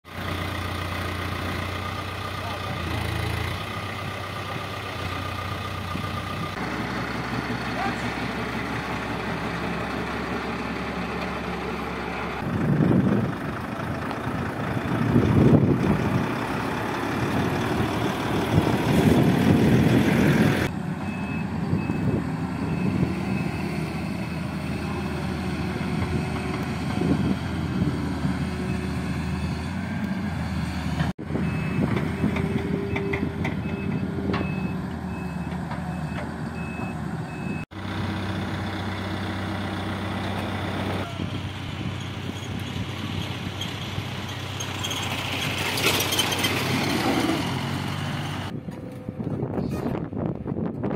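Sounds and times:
diesel trucks and machines running: 0.0 - 50.9
reversing alarm beeping: 21.0 - 24.8, 31.4 - 37.6.

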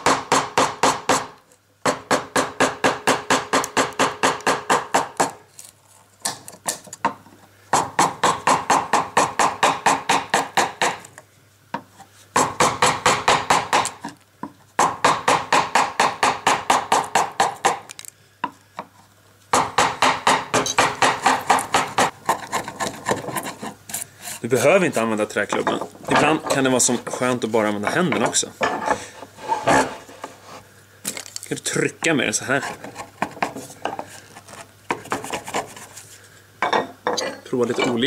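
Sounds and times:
wooden mallet tapping gouge: 19.6 - 23.6.

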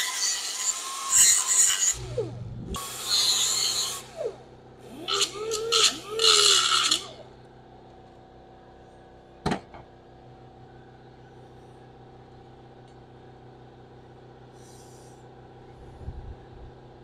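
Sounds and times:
air compressor running: 1.9 - 7.7, 14.4 - 16.7.

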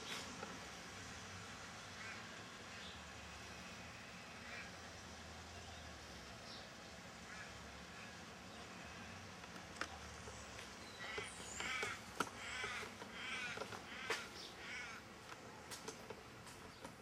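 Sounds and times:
crow cawing: 2.0 - 2.3, 4.4 - 4.7, 7.3 - 8.2, 11.0 - 15.1.

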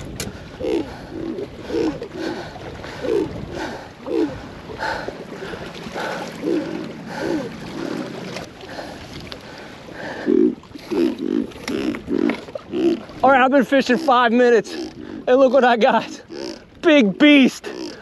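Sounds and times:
man breathing hard and grunting: 0.4 - 8.1.

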